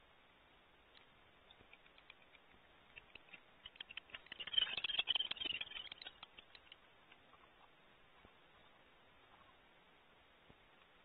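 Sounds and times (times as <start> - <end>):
owl talons scratching wood: 1.5 - 7.3.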